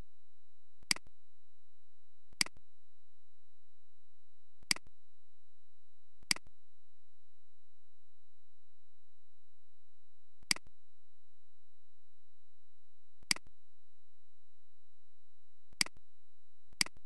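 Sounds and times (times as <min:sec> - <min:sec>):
faint steady hum: 0:00.0 - 0:17.0
computer mouse clicks: 0:02.4 - 0:02.6, 0:15.8 - 0:16.0, 0:16.8 - 0:17.0.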